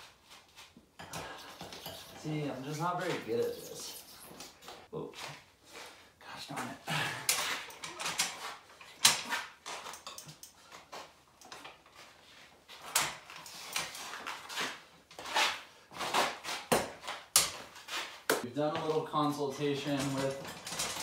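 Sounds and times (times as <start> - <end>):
metal clanks and knocks: 19.8 - 21.0.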